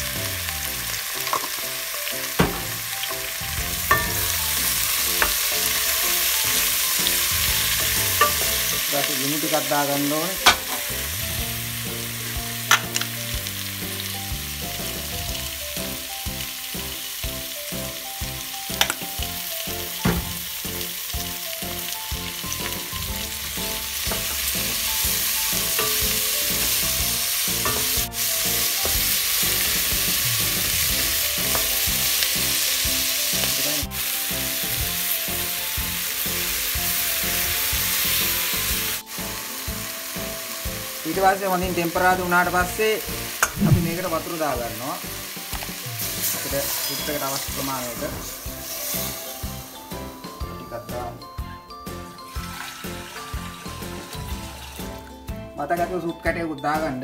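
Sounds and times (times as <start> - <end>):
vegetables sizzling in pot: 0.0 - 55.4
wooden spoon knocking on pot: 2.4 - 2.8.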